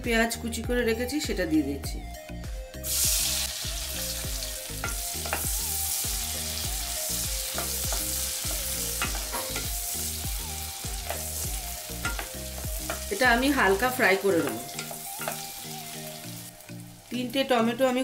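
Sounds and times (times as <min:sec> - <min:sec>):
onions sizzling in hot oil: 0:02.8 - 0:18.0
wooden spoon knocking a pan: 0:09.0 - 0:09.7.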